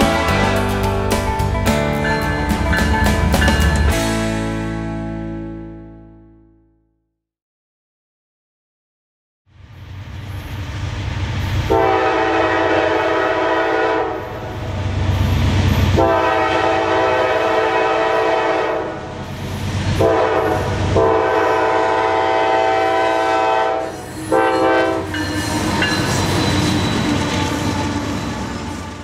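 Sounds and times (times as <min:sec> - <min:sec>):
train horn blasts: 0:00.0 - 0:01.0, 0:11.7 - 0:14.6, 0:16.0 - 0:19.1, 0:20.0 - 0:26.0
diesel locomotive rumble: 0:00.0 - 0:04.9, 0:09.7 - 0:29.0.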